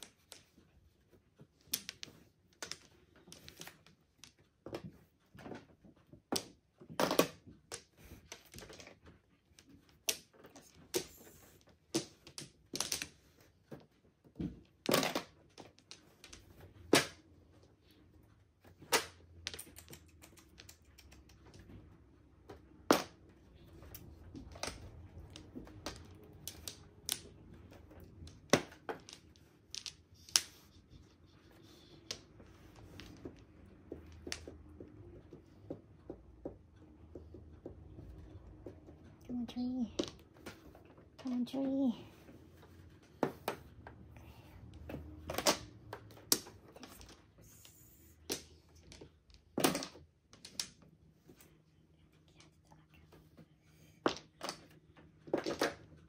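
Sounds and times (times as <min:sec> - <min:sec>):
mahjong tiles clacking: 0:00.0 - 0:56.0.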